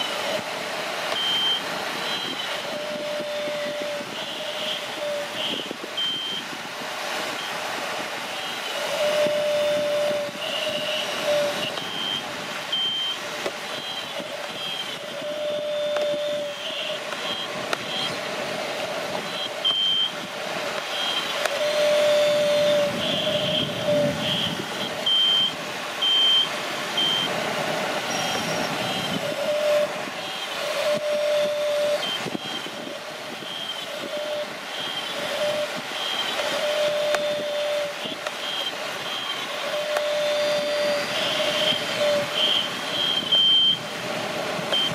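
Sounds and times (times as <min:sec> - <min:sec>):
steady hiss: 0:00.0 - 0:44.9
two-pitch electronic beeps: 0:01.1 - 0:04.8, 0:05.4 - 0:06.4, 0:08.3 - 0:13.2, 0:19.3 - 0:20.2, 0:20.9 - 0:27.3, 0:28.1 - 0:43.8.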